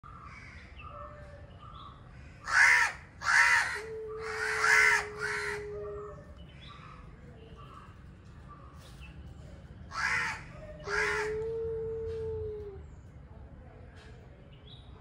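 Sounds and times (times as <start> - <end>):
cats screeching yowls: 2.5 - 6.0, 10.0 - 12.8
cat low moaning yowl: 11.2 - 12.9.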